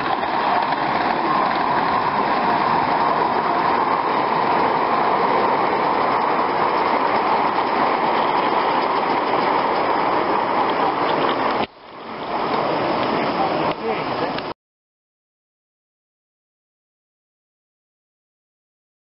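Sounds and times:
faint clicks over rails: 0.0s - 14.5s
model train wheels rolling: 0.0s - 14.5s.

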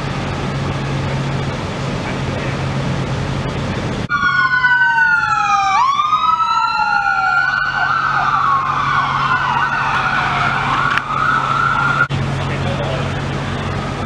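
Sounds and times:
ambulance siren: 4.1s - 12.1s, 13.4s - 14.0s.

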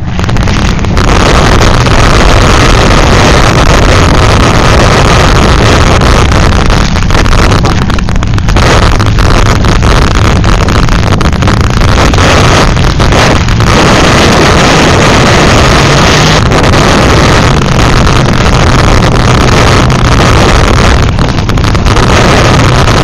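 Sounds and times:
car engines running hard: 0.0s - 23.0s
wind buffeting microphone: 0.0s - 23.0s.

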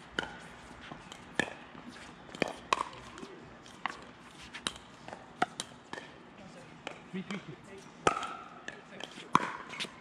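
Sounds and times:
ball bouncing on court: 8.0s - 9.9s.

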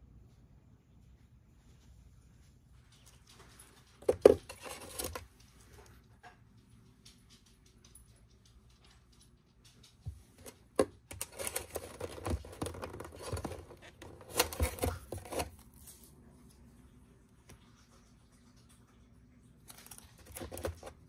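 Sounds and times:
packaging rustling and crinkling: 3.2s - 5.3s, 10.4s - 16.1s, 19.7s - 21.0s.

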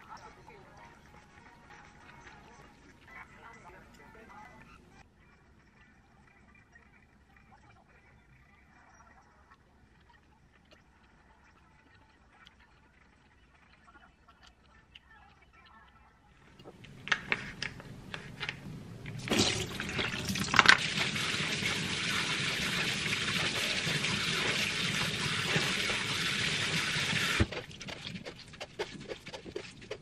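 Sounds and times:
faucet spray running: 19.0s - 27.5s.

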